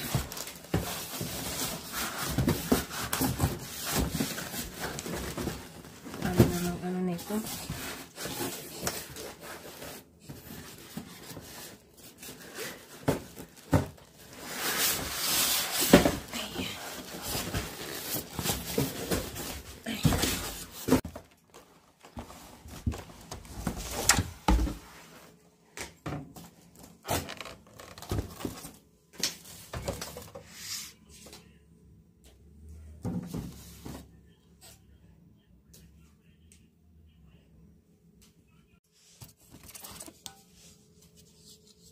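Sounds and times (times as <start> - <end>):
plastic and cardboard rustling: 0.0 - 25.4, 26.4 - 30.5, 39.1 - 41.9.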